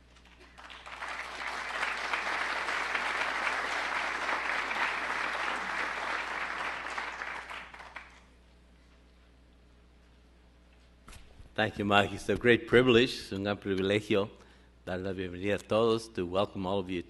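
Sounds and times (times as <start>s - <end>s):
audience applauding: 0.2s - 8.2s.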